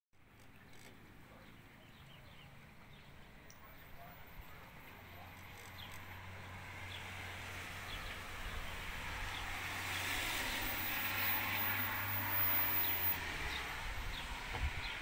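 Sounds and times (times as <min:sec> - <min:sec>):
birds chirping faintly: 0:07.8 - 0:15.0.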